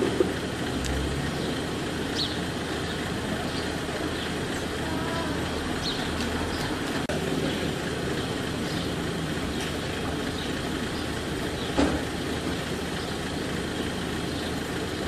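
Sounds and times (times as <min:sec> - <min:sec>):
jeep engine idling: 0:00.0 - 0:15.0.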